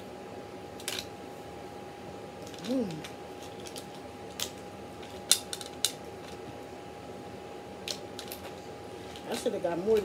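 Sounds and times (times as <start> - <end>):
person humming: 2.6 - 3.1.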